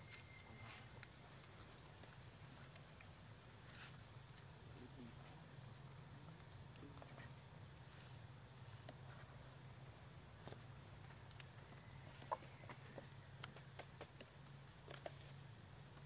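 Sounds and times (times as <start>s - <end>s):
insect chirp: 0.0s - 16.0s
insect drone: 0.0s - 16.0s.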